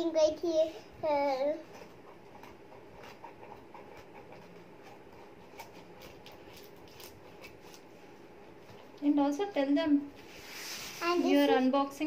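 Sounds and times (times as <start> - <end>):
scissors cutting tape and cardboard: 4.0 - 7.9.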